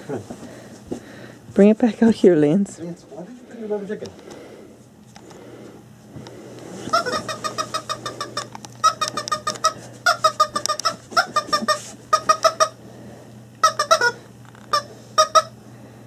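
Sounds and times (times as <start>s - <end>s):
rubber chicken toy squeaking: 6.9s - 12.8s, 13.6s - 15.5s.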